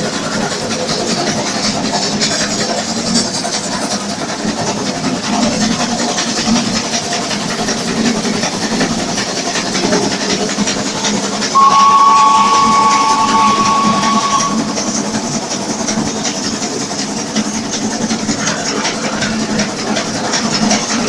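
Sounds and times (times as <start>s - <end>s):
steam hissing: 0.0s - 21.0s
steam locomotive running: 0.0s - 21.0s
two-note steam whistle blast: 11.5s - 15.4s.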